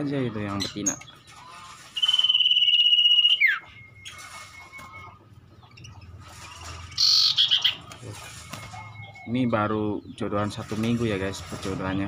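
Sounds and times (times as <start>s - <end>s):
bird whistling: 2.0s - 6.0s, 7.0s - 9.4s.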